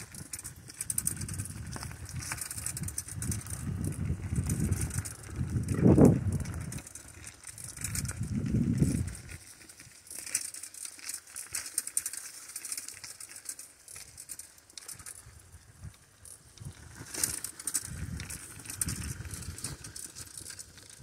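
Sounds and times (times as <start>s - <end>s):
bicycle tyres crackling on trail: 0.0s - 21.0s
wind buffeting microphone: 0.1s - 9.4s, 17.8s - 19.9s.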